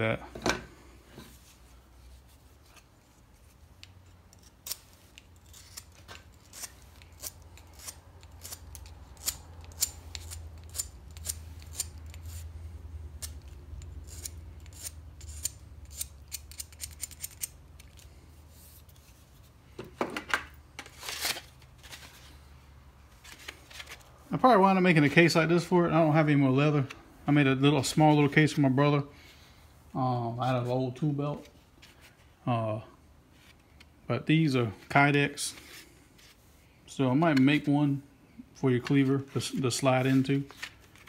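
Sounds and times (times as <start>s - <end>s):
knife scraping metal blade: 4.3s - 12.5s, 13.2s - 17.9s.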